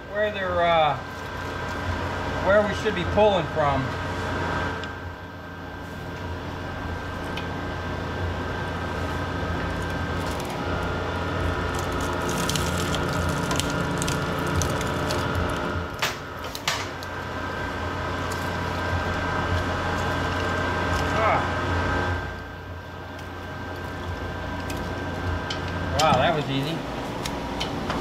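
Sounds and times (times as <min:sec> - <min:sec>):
machine humming: 0:00.0 - 0:28.0
crackling: 0:08.5 - 0:28.0.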